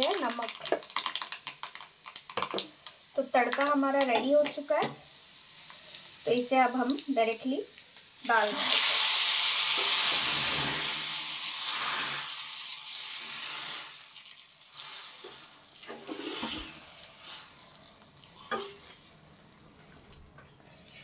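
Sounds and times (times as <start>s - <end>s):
oil sizzling: 0.0s - 21.0s
pan stirring through dal: 8.2s - 19.9s.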